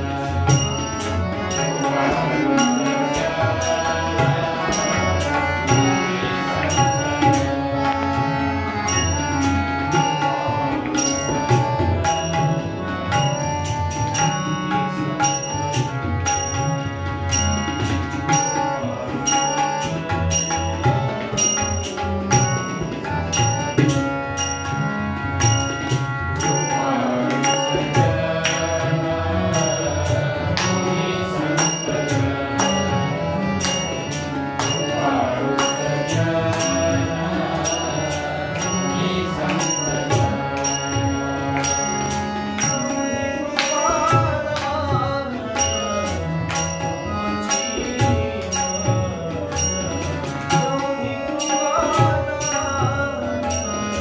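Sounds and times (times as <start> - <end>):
harmonium melody: 0.0 - 54.0
voices singing: 0.0 - 54.0
hands clapping a beat: 7.8 - 8.3, 27.2 - 29.0, 30.5 - 30.9, 32.6 - 33.0, 33.6 - 36.9, 37.6 - 43.0, 43.6 - 44.8.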